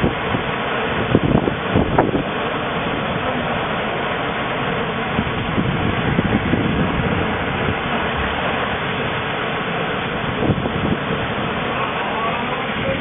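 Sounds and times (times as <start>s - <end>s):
bow wave rushing along hull: 0.0s - 13.0s
wind buffeting microphone: 0.0s - 13.0s.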